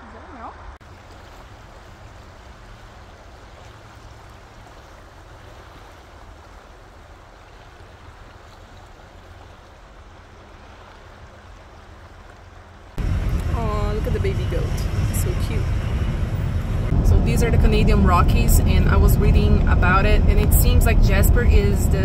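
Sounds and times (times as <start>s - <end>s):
river rushing: 0.0s - 17.2s.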